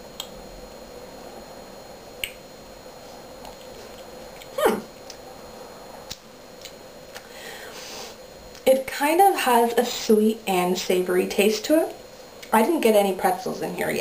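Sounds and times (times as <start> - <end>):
lip-smacking while eating: 2.2 - 2.4, 3.4 - 5.2.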